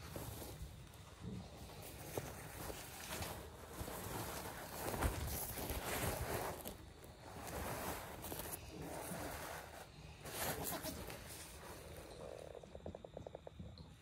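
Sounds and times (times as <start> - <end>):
pad rustling and crinkling: 0.0 - 12.6.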